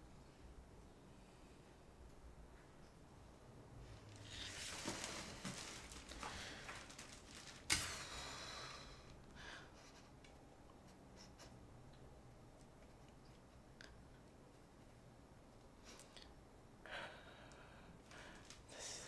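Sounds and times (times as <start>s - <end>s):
rustling and handling noise: 3.8s - 8.2s.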